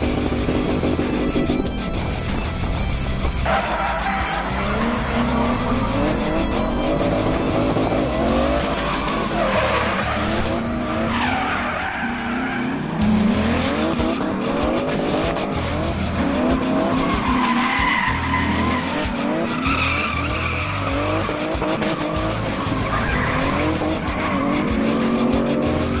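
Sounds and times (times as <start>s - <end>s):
car engine revving hard: 0.0s - 1.8s, 3.4s - 26.0s
tyres squealing on tarmac: 3.5s - 6.4s, 8.3s - 13.1s, 16.5s - 25.2s.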